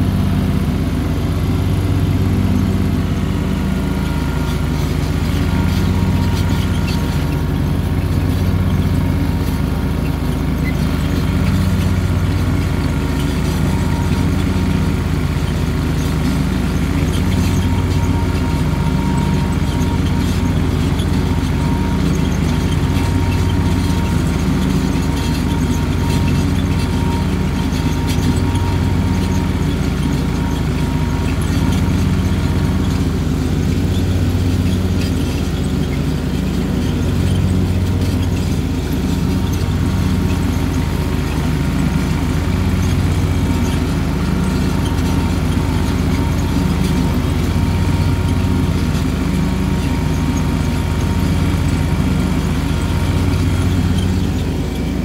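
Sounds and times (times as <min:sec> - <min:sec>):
tractor engine droning: 0:00.0 - 0:55.0.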